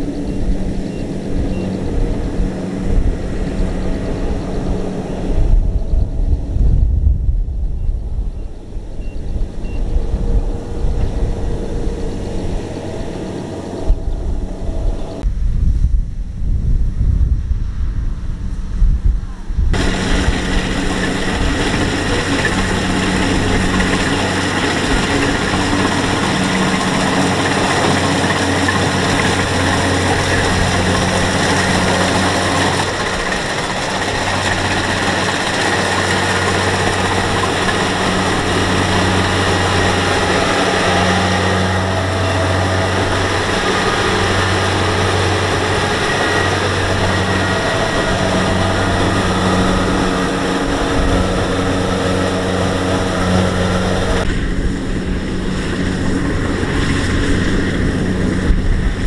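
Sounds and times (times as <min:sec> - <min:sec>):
diesel engine humming: 0:00.0 - 0:15.3, 0:19.7 - 0:59.0
harvester mechanical noise: 0:19.7 - 0:59.0.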